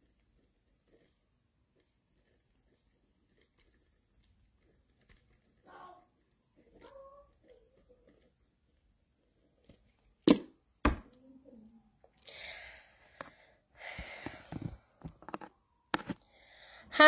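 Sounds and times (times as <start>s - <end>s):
sharp knocks on a desk: 10.3s - 11.1s.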